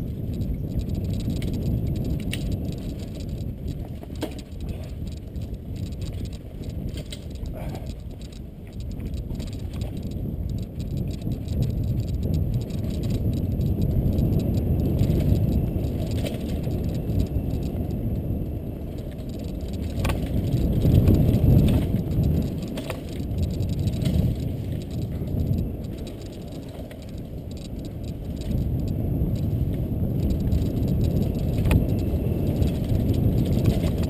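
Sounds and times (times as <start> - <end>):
bike rattling: 0.0 - 34.0
bike rumbling on dirt trail: 0.0 - 34.0.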